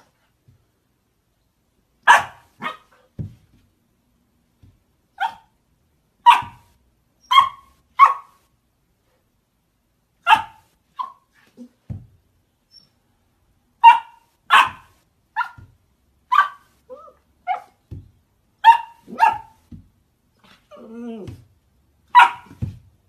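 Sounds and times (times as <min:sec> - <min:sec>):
puppy barking: 0:02.0 - 0:03.1, 0:05.2 - 0:05.5, 0:06.2 - 0:08.4, 0:10.2 - 0:11.4, 0:13.8 - 0:15.7, 0:16.3 - 0:17.8, 0:18.6 - 0:19.7, 0:22.1 - 0:22.6
soft low thump: 0:03.2 - 0:03.7, 0:11.9 - 0:12.2, 0:17.9 - 0:18.2.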